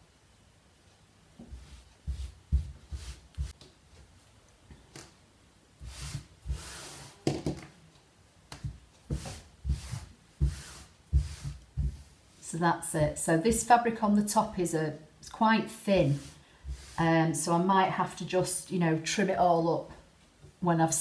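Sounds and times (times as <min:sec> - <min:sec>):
hands patting fabric: 0:01.4 - 0:03.7, 0:08.5 - 0:12.2
cloth sliding and rustling: 0:09.1 - 0:12.5.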